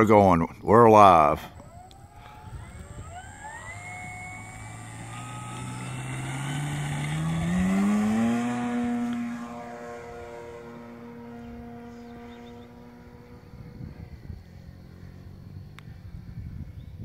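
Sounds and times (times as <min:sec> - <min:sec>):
model plane motor and propeller: 0:00.0 - 0:17.0.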